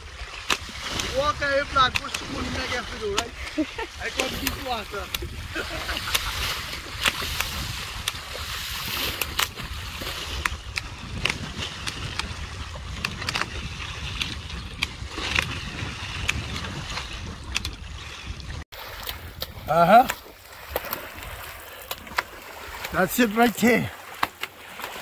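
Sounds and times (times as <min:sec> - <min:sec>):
water sloshing around boat: 0:00.0 - 0:25.0.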